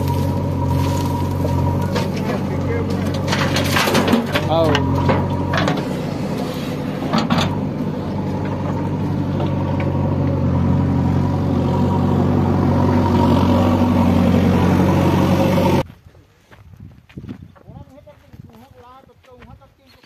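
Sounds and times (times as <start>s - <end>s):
diesel engines running: 0.0s - 15.9s.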